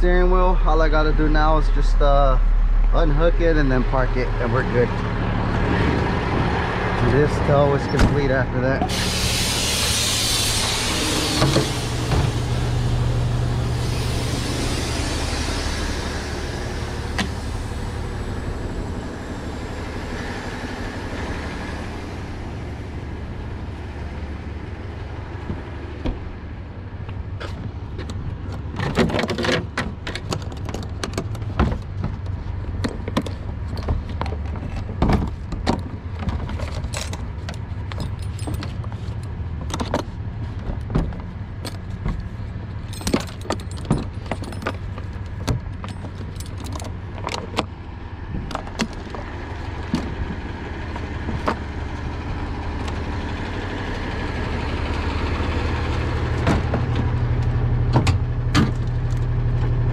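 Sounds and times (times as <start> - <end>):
truck engine idling: 0.0 - 28.8, 37.1 - 59.9
metal chains clanking: 36.6 - 38.9, 42.8 - 47.6.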